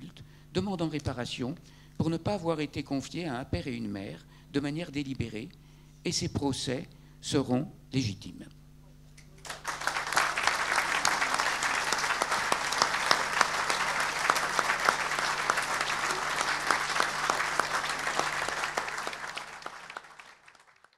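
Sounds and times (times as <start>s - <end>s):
audience applauding: 9.4s - 20.9s.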